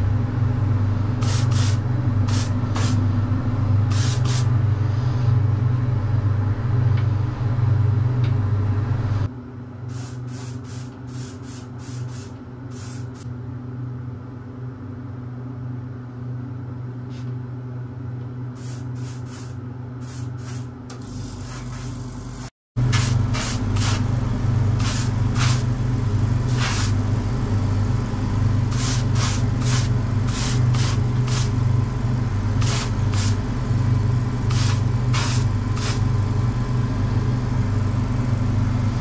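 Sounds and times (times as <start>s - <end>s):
low machine hum: 0.0s - 39.0s
spray gun hissing: 1.2s - 3.0s, 3.9s - 4.5s, 9.9s - 13.2s, 18.6s - 24.0s, 24.8s - 25.7s, 26.5s - 27.0s, 28.7s - 31.6s, 32.6s - 33.4s, 34.5s - 36.1s.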